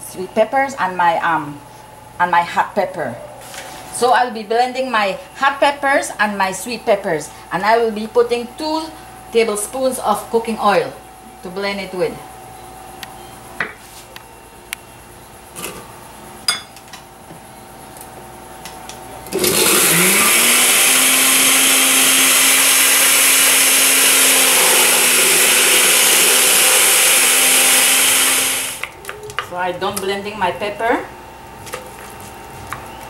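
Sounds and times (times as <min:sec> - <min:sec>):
blender motor whine: 0:19.3 - 0:28.9.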